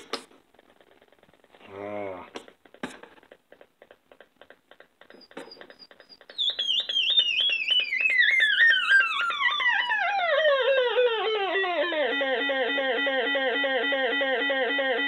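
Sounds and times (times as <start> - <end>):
faint rapid clicking: 2.3 - 8.2
electronic squeal of chirps: 5.1 - 15.0.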